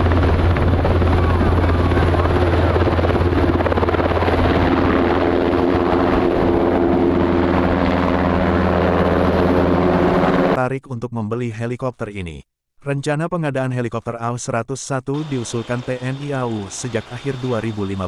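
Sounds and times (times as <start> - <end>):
helicopter rotor beat: 0.0 - 10.6, 15.2 - 18.0
multi-tone engine whine: 0.0 - 10.6, 15.2 - 18.0.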